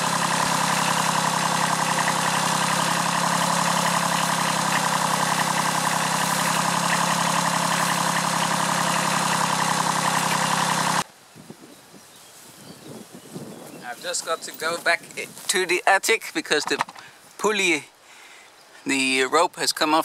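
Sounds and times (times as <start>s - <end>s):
tractor diesel engine running: 0.0s - 11.0s.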